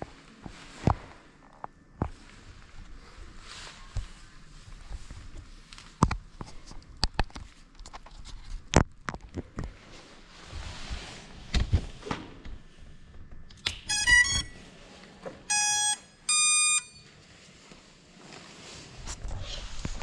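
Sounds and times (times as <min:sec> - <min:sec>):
drone motors beeping: 0:13.9 - 0:14.6, 0:15.5 - 0:17.0.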